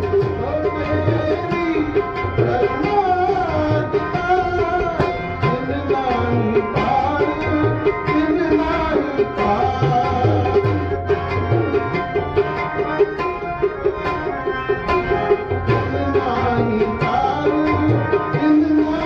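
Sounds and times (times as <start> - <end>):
held melodic notes: 0.0 - 19.0
tabla playing a steady beat: 0.0 - 19.0
person singing: 15.6 - 19.0.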